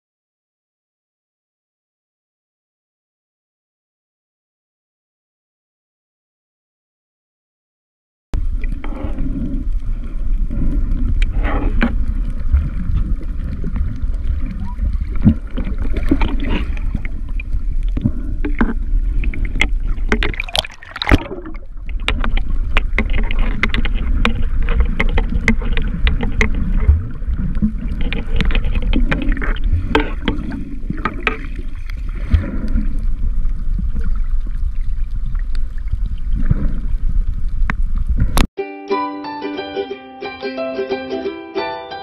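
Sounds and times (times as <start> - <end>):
water rushing underwater: 8.4 - 38.4
sharp clicks and crackles: 8.4 - 38.5.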